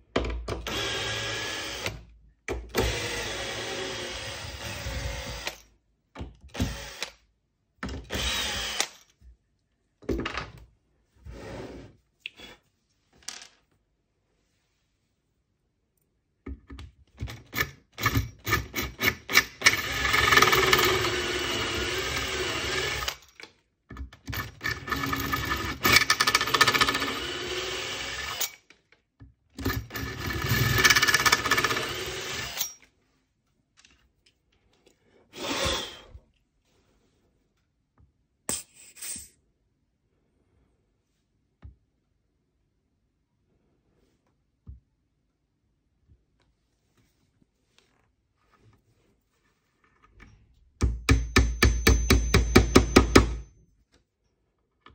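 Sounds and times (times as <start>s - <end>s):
cordless drill boring: 0.6s - 2.0s, 2.7s - 5.6s, 6.5s - 7.1s, 8.1s - 9.0s, 18.0s - 23.2s, 24.3s - 28.6s, 29.6s - 32.7s.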